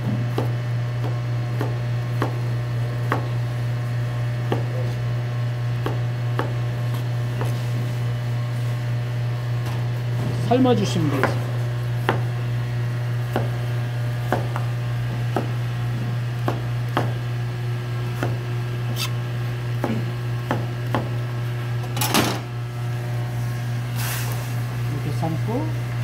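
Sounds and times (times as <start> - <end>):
steady low hum: 0.0 - 26.0
knife cutting potato on board: 18.2 - 19.2.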